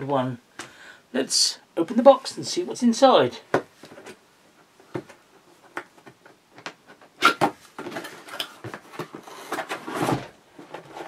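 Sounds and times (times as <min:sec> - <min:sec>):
cardboard rustling and scraping: 0:06.9 - 0:11.0.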